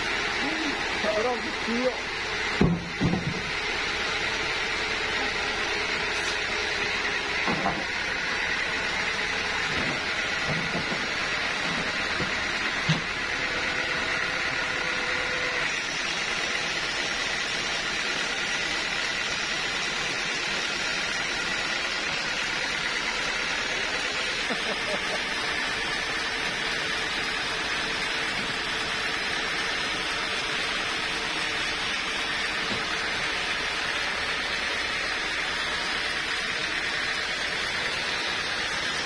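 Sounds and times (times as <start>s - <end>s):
sawmill machinery running: 0.0s - 39.0s
log knocking into place: 2.6s - 3.5s.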